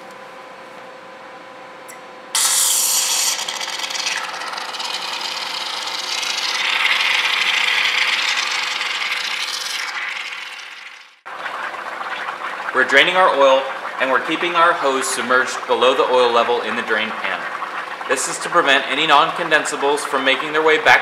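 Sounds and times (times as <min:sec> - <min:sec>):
refrigerant hissing from a hose: 0:02.4 - 0:11.1
oil bubbling: 0:02.4 - 0:21.0.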